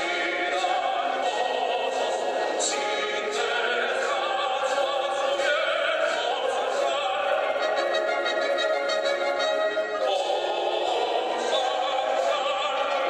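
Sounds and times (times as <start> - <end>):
man singing operatic anthem: 0.0 - 13.0.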